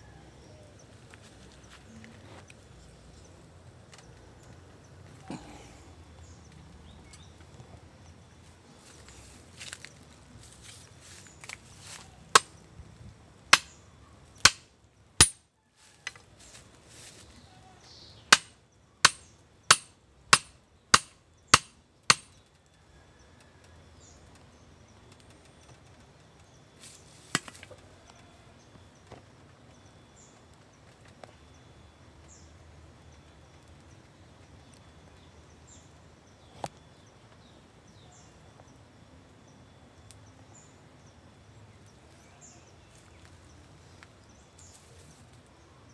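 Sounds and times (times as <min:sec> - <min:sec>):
sharp chopping blows: 0:13.5 - 0:13.8, 0:14.4 - 0:15.4, 0:18.3 - 0:22.3
faint bird chirps: 0:31.2 - 0:45.9.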